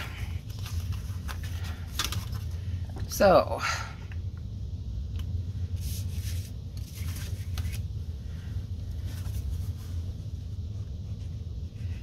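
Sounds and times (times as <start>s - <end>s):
steady low hum: 0.0s - 12.0s
paper rustling and scraping: 0.1s - 2.5s, 5.8s - 7.8s, 9.0s - 10.1s.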